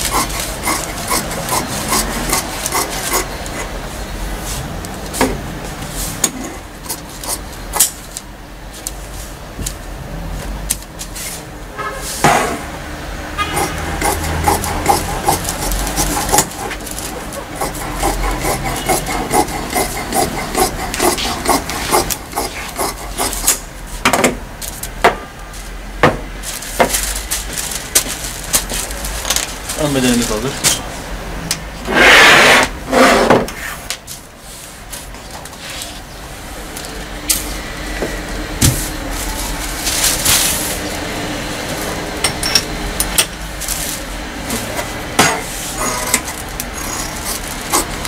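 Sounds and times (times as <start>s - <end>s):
shears snipping fabric: 0.0s - 3.7s, 13.5s - 23.6s, 45.8s - 48.0s
fabric and paper rustling: 26.4s - 30.8s, 38.8s - 41.0s.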